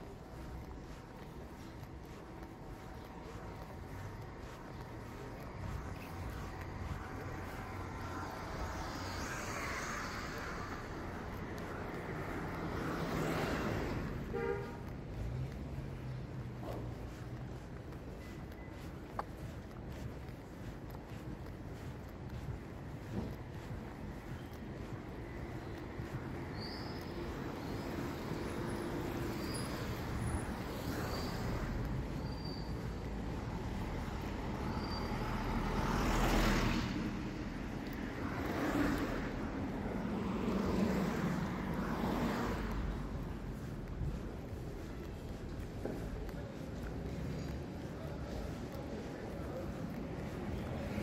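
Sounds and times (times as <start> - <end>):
cars driving past: 0.0 - 51.0
car horn toot: 14.3 - 14.8.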